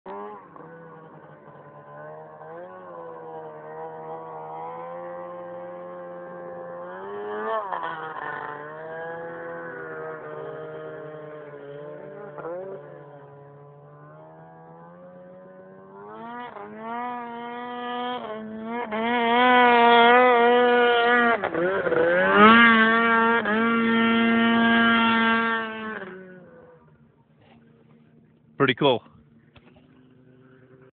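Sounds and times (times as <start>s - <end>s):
snowmobile engine revving: 0.1s - 26.9s.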